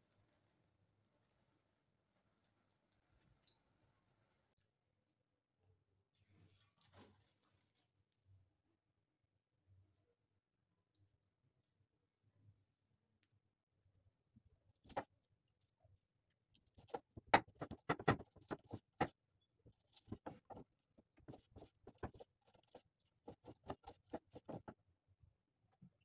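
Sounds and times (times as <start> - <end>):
knife chopping onion on wood: 14.9 - 15.1, 16.8 - 19.2, 21.2 - 24.8.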